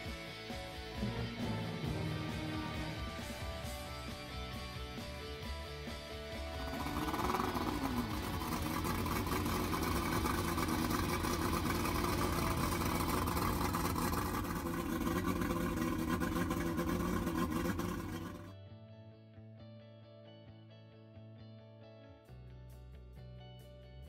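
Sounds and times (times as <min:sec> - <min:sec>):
outboard motor idling: 0:00.0 - 0:18.6.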